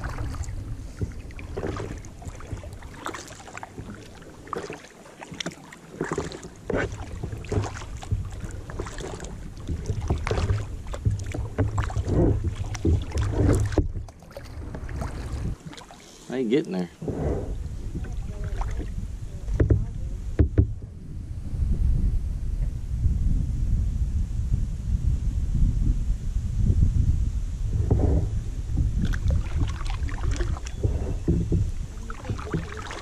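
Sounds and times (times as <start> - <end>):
wind rumbling on microphone: 0.0 - 4.8, 6.0 - 15.9, 16.8 - 33.0
paddle splashing in water: 0.0 - 20.8, 27.8 - 33.0.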